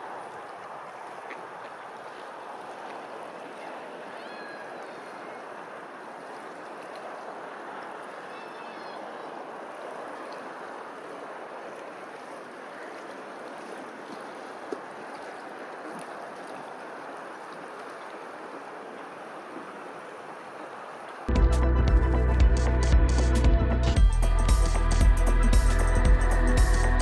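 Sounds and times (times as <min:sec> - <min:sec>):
water rippling and lapping: 0:00.0 - 0:21.3
loud music: 0:21.3 - 0:27.0.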